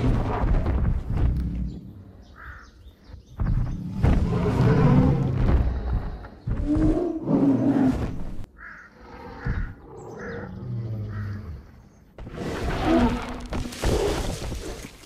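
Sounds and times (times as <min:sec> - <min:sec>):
low growling: 0:03.7 - 0:08.2, 0:09.0 - 0:14.3
dinosaur roaring: 0:03.8 - 0:08.0.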